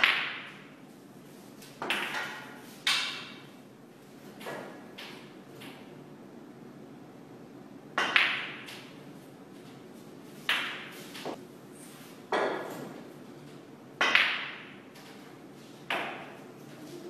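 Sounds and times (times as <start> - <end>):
snooker balls clacking: 0.0 - 0.7, 8.0 - 8.9, 10.5 - 11.4, 14.0 - 14.8.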